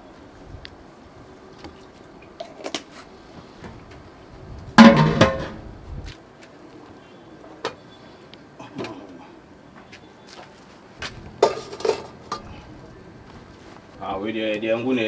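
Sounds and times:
pots clicking and knocking: 11.0 - 12.6
metal lid clanging on pot: 11.3 - 12.5.

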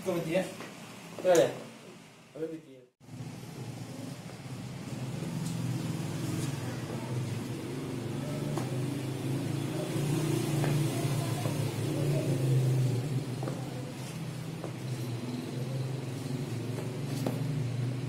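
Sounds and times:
low engine rumble: 3.0 - 18.0
sneakers tapping on tiled floor: 10.5 - 11.8, 13.4 - 15.0, 16.6 - 17.6.

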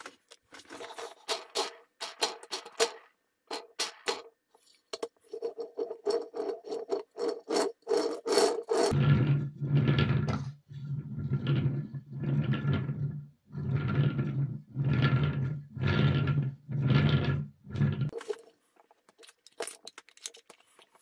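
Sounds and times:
wooden wheels rolling on table: 5.5 - 18.2.

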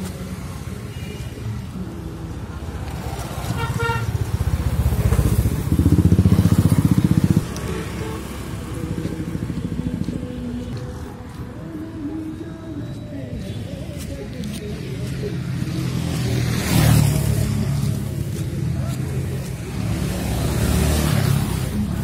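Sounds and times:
traffic engine rumble: 0.0 - 22.0
motorcycle passing: 2.2 - 11.8, 14.9 - 22.0
horn toot: 3.5 - 4.2.

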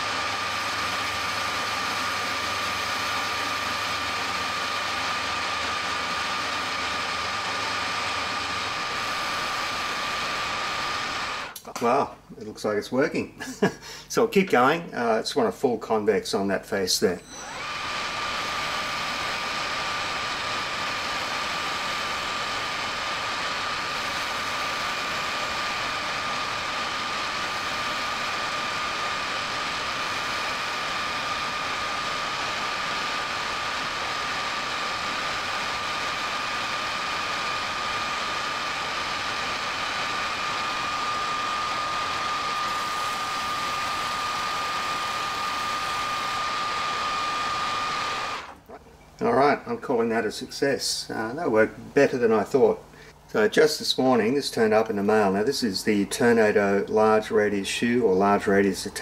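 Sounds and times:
metal lathe whining: 0.0 - 11.6, 17.2 - 48.8.

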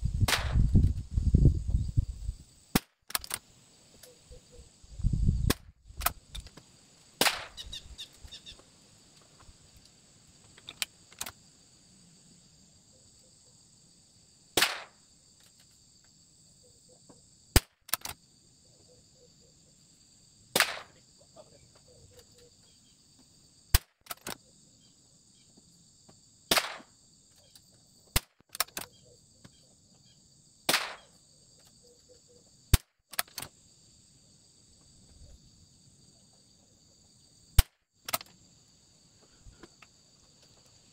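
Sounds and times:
rifle shots cracking: 20.6 - 21.0, 26.5 - 26.9, 30.7 - 31.1.

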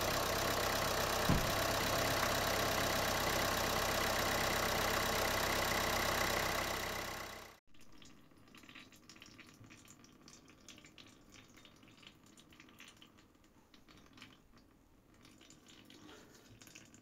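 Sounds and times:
faint dripping patter: 7.8 - 17.0.

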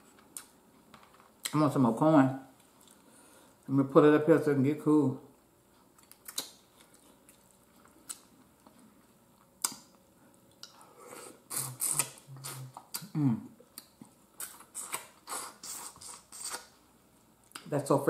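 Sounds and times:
lip smacks and chewing: 5.9 - 10.8, 11.5 - 13.1
closed-mouth hums: 10.6 - 16.7.

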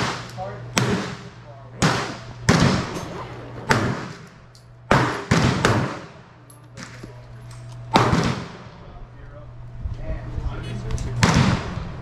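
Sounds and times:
pistol shots with echo: 0.0 - 4.3, 4.9 - 6.9, 7.9 - 8.7.

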